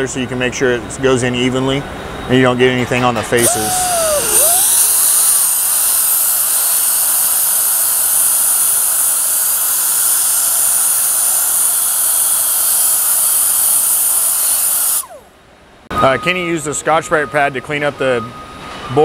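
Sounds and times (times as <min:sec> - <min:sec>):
air die grinder whine: 0:03.2 - 0:15.4.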